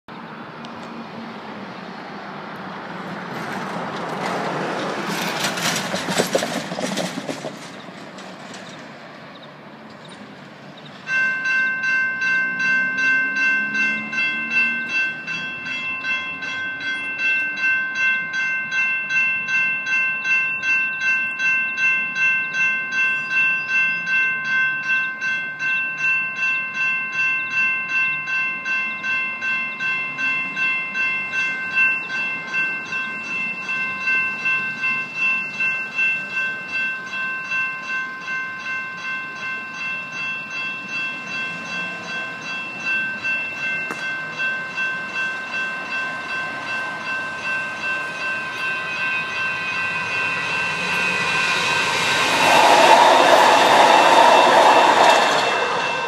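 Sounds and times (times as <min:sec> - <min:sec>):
electronic crossing bells ringing: 0:11.0 - 0:56.0
rushing noise: 0:48.7 - 0:56.0.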